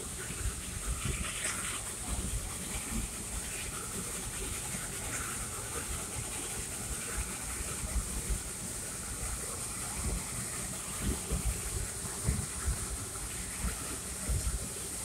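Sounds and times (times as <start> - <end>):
steam train hiss: 0.0 - 15.0
train low rumble: 0.0 - 15.0.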